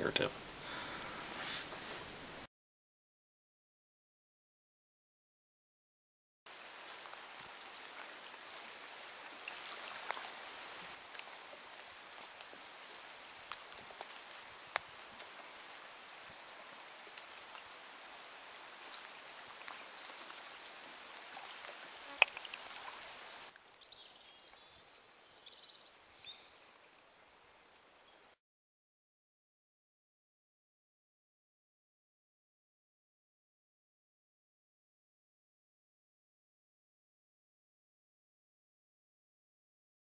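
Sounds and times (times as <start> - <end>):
water drips: 6.5 - 24.7
rain falling on leaves: 6.5 - 25.1.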